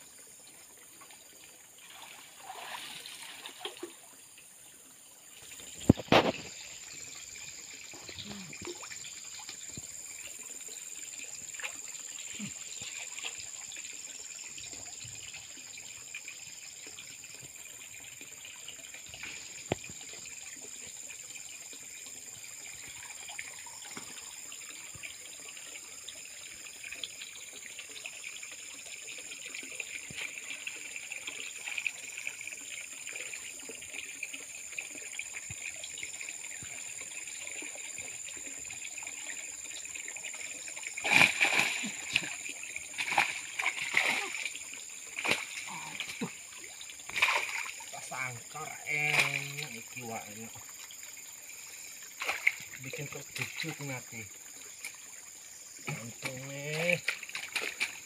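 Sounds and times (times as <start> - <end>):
water trickling and lapping: 0.0 - 58.0
loud splashing: 41.0 - 42.4, 43.0 - 44.5.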